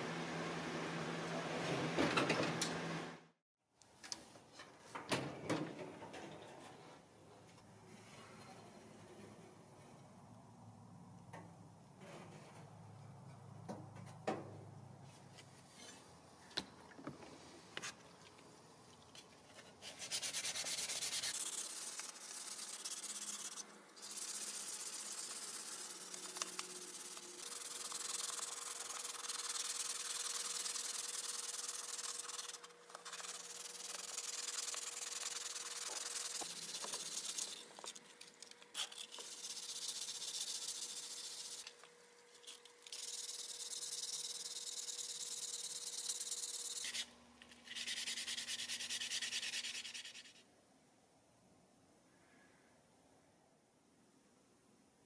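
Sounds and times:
sanding sponge rubbing on metal: 0:19.8 - 0:37.7, 0:39.2 - 0:41.6, 0:43.0 - 0:50.4.

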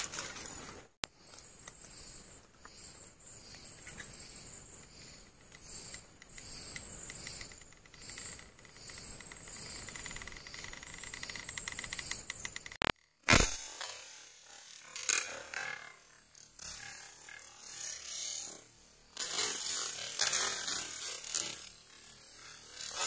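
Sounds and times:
night insects chirping: 0:01.2 - 0:12.8.

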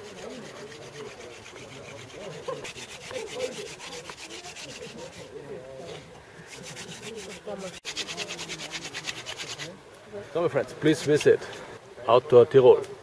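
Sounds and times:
wooden spindle scraping fireboard: 0:00.0 - 0:09.7.

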